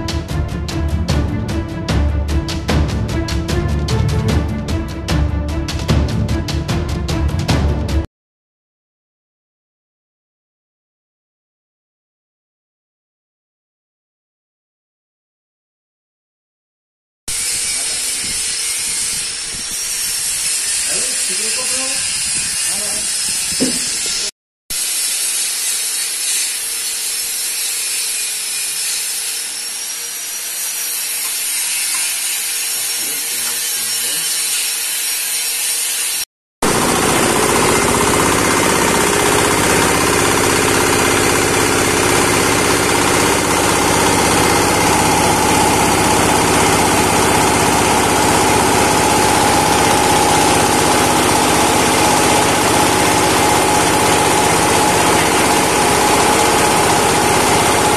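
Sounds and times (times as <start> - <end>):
hammer mill grinder running: 17.3 - 57.9.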